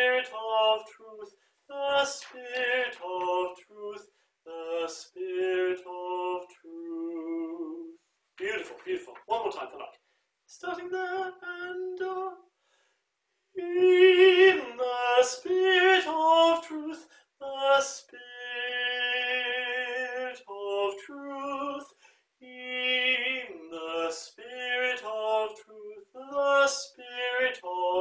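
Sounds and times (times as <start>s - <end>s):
choral singing: 0.0s - 8.0s.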